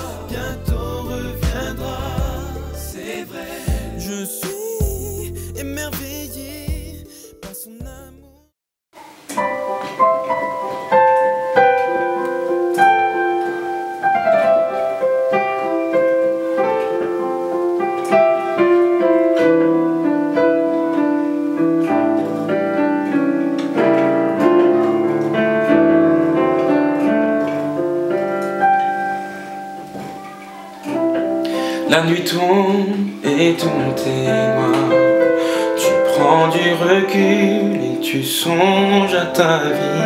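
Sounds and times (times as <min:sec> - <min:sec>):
slow piano chords: 0:00.0 - 0:07.6, 0:09.0 - 0:40.0.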